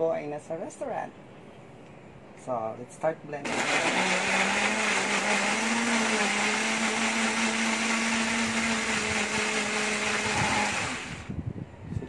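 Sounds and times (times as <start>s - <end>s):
blender motor running: 3.5s - 11.4s.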